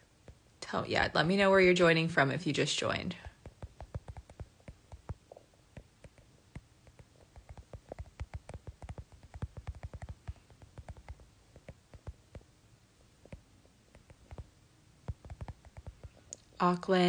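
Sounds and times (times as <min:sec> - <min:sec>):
fingers tapping on touchscreen: 0:03.2 - 0:12.5, 0:13.2 - 0:16.4.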